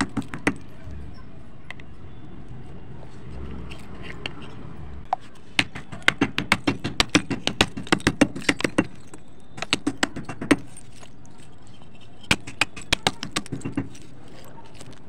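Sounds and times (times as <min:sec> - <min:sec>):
dried clay cracking and snapping: 0:00.0 - 0:00.7, 0:05.4 - 0:15.0.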